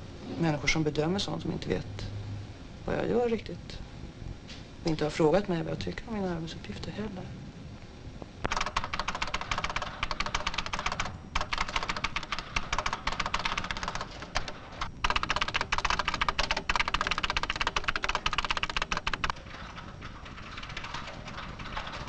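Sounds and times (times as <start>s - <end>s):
fast keyboard typing: 8.5s - 19.5s, 20.2s - 22.0s.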